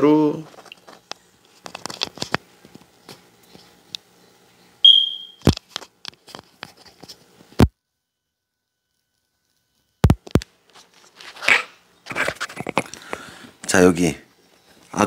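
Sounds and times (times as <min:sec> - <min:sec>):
short high beep: 0:04.8 - 0:05.4.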